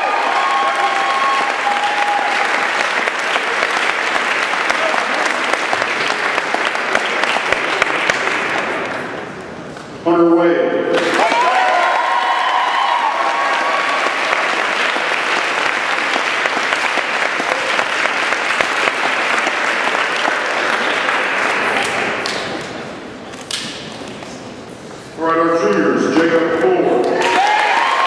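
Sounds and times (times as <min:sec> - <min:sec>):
audience clapping: 0:00.0 - 0:09.4, 0:10.9 - 0:22.9, 0:27.0 - 0:28.0.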